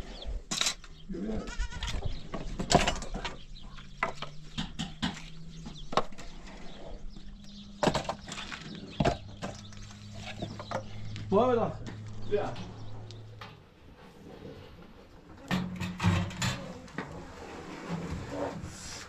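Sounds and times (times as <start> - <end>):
goats bleating: 1.1 - 2.0.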